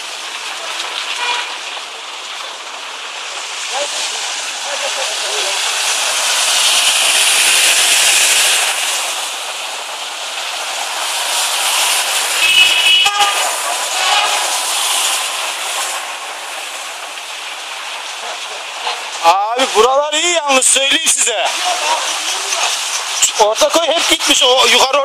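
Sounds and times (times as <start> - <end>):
traffic on a wet street: 0.0 - 25.0
vehicle horn toot: 1.2 - 1.6, 12.4 - 14.4.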